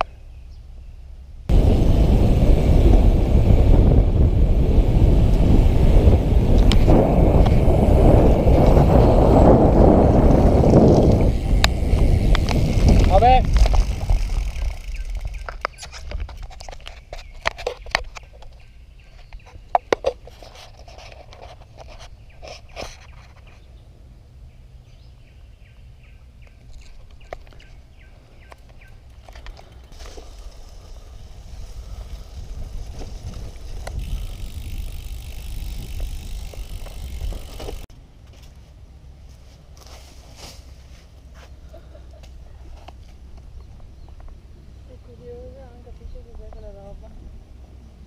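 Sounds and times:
wind rumbling on microphone: 0:01.5 - 0:23.9, 0:25.0 - 0:37.9
bicycle rolling on concrete: 0:01.5 - 0:25.3, 0:26.2 - 0:47.8
sharp clicks and rattles: 0:10.1 - 0:23.5, 0:32.9 - 0:37.9.

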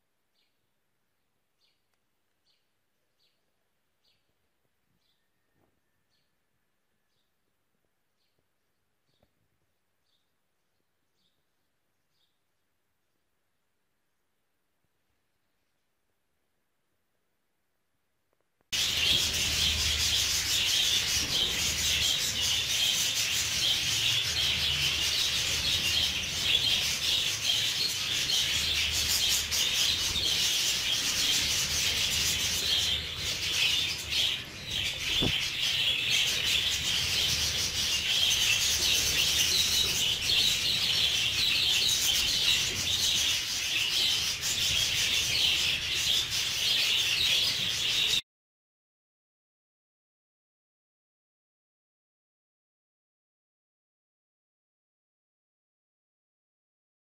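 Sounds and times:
budgerigars chattering and warbling: 0:18.8 - 0:48.2.

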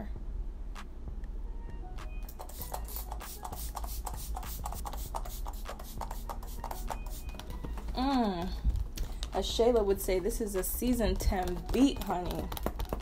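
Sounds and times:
spray bottle spritzes: 0:02.3 - 0:07.4.

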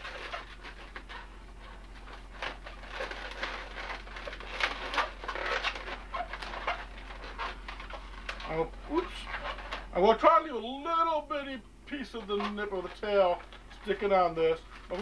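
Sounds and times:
rubber balloon squeaking: 0:00.0 - 0:10.1.

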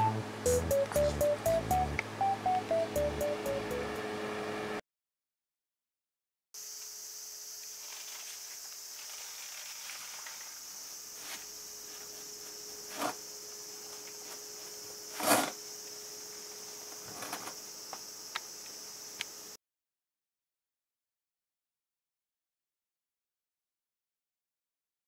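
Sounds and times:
faint steady hum: 0:00.0 - 0:04.8, 0:06.6 - 0:19.6
high-pitched insect chorus: 0:06.6 - 0:19.6.

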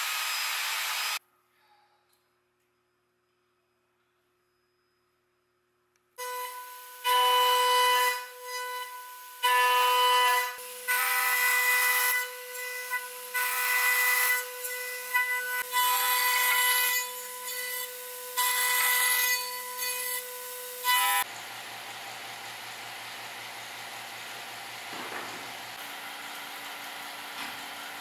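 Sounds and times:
router bit cutting wood: 0:00.0 - 0:01.2.

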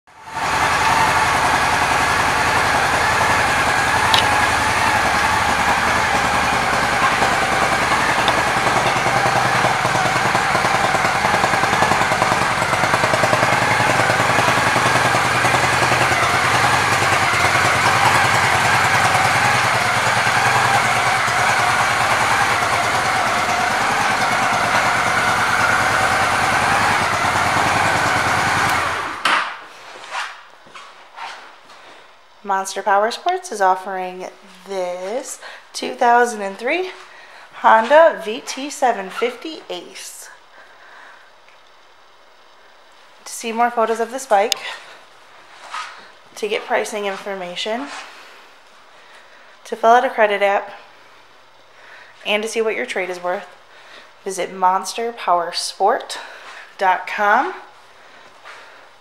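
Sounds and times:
motorcycle engine idling: 0:00.1 - 0:29.3.

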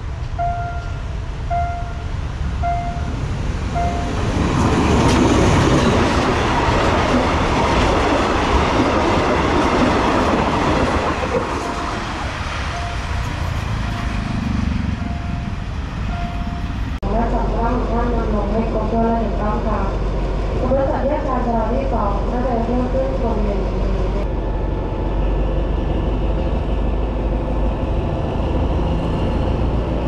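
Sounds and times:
level crossing warning bell: 0:00.3 - 0:04.4, 0:11.6 - 0:17.0
train wheels clattering over rails: 0:03.8 - 0:17.0.

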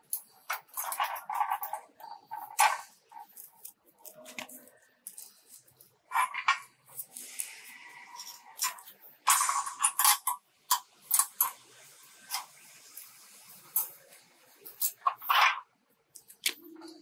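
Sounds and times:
rasping wire twist: 0:00.0 - 0:10.2.

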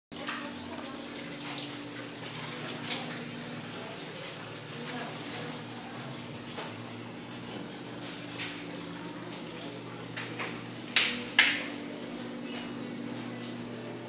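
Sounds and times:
room noise hiss and hum: 0:00.2 - 0:14.0.

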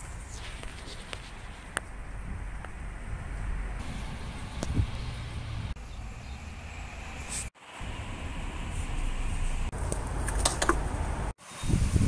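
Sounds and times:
wind rumble on microphone: 0:00.0 - 0:05.7, 0:10.8 - 0:12.0.

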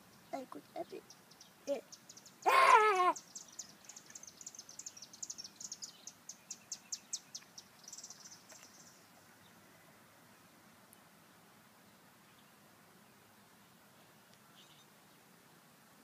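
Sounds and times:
small bird chirping: 0:00.0 - 0:02.5, 0:03.1 - 0:09.6.

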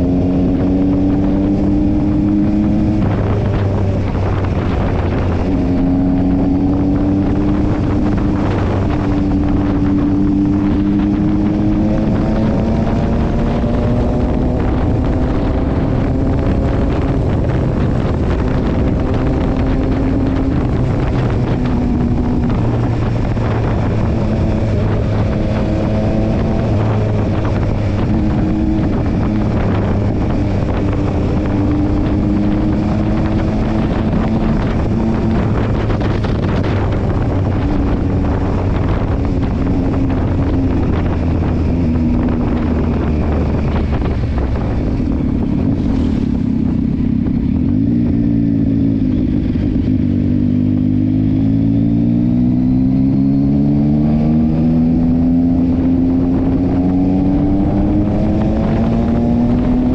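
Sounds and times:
motorcycle engine running: 0:00.0 - 0:59.9
wind noise on microphone: 0:00.0 - 0:59.9.

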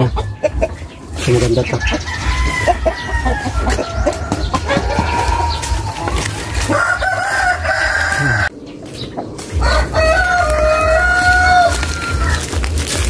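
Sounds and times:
hens clucking: 0:00.0 - 0:13.0
rooster crowing: 0:02.0 - 0:08.5, 0:09.6 - 0:12.7.

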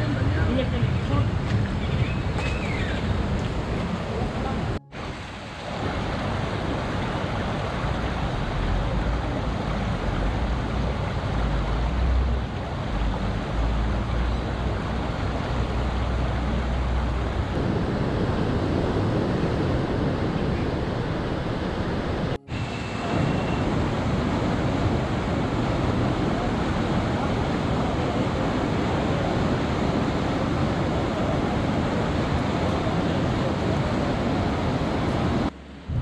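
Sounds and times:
floodwater rushing: 0:00.0 - 0:36.0
surf breaking on shore: 0:00.1 - 0:11.4, 0:17.5 - 0:36.0
wind buffeting microphone: 0:17.2 - 0:36.0.

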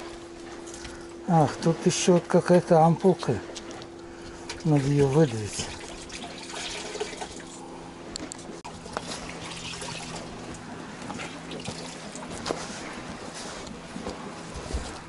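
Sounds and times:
wet squelching and dribbling: 0:08.8 - 0:15.0.

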